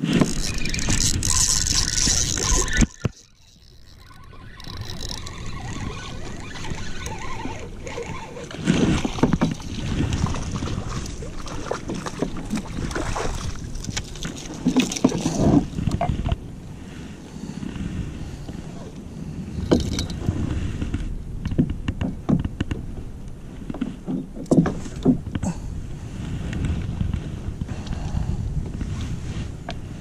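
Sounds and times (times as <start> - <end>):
water splashing around kayak hull: 0.0 - 17.2
wind buffeting microphone: 0.0 - 30.0.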